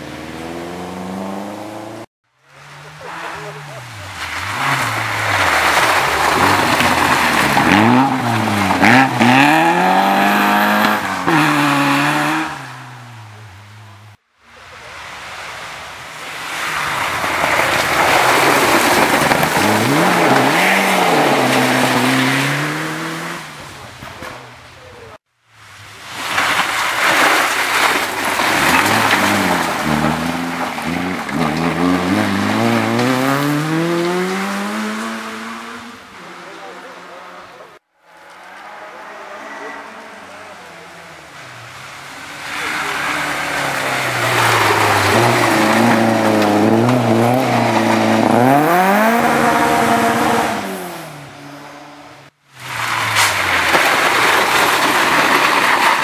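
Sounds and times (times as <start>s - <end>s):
rally car engine revving: 0.0s - 56.0s
tyres scrabbling on gravel: 2.8s - 12.4s, 16.4s - 24.3s, 25.7s - 35.2s, 41.2s - 51.0s, 52.6s - 56.0s.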